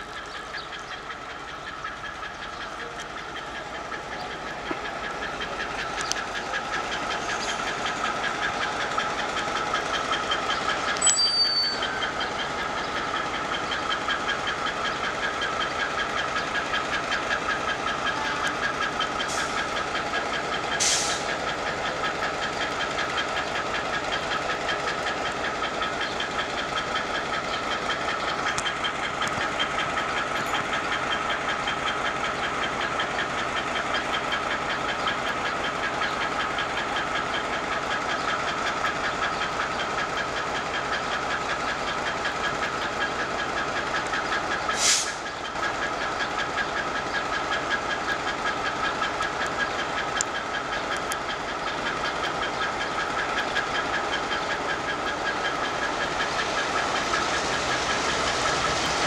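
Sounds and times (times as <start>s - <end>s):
diesel locomotive engine pulsing: 0.0s - 59.0s
high steady tone: 11.0s - 12.0s.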